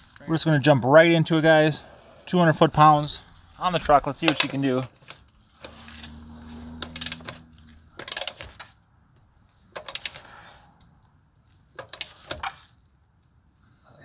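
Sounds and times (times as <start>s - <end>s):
torque wrench ratchet clicks: 6.8s - 7.3s.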